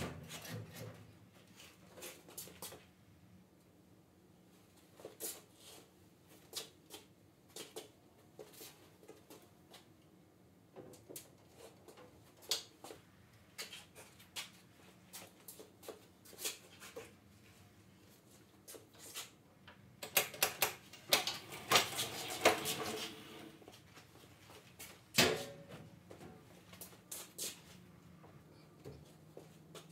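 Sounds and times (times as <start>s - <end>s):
footsteps on concrete floor: 23.1s - 29.9s.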